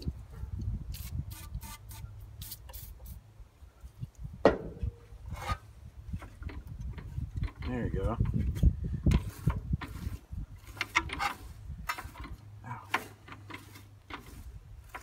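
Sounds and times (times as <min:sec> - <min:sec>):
can knocking on wooden deck: 0:04.5 - 0:04.9.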